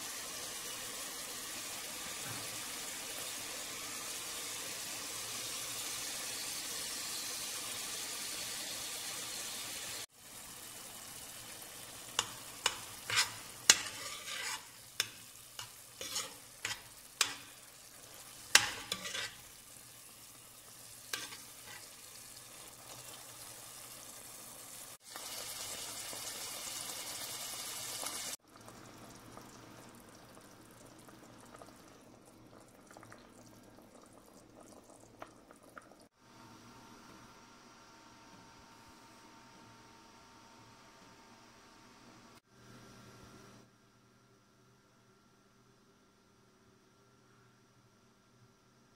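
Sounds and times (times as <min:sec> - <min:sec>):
meat sizzling in a frying pan: 0:00.0 - 0:30.4
sauce simmering: 0:00.0 - 0:36.2
utensil knocking and scraping pan: 0:12.2 - 0:17.6, 0:18.5 - 0:19.4, 0:21.1 - 0:21.9.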